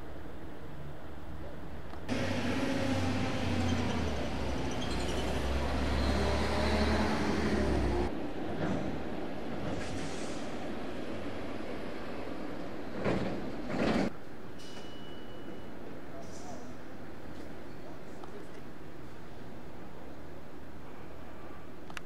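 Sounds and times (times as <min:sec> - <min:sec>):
faint city hum: 0:00.0 - 0:22.0
traffic noise: 0:00.0 - 0:22.0
vehicle engine drone: 0:02.1 - 0:08.1.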